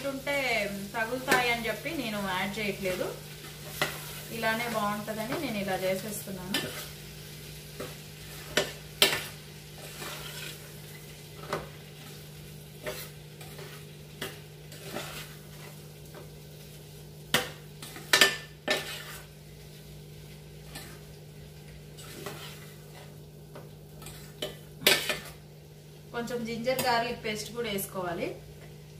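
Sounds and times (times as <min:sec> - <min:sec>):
food sizzling: 0:00.0 - 0:28.9
metal spoon scraping pan: 0:07.8 - 0:10.7, 0:12.8 - 0:15.8, 0:17.8 - 0:19.3, 0:20.6 - 0:21.1, 0:22.0 - 0:23.1, 0:24.0 - 0:25.4.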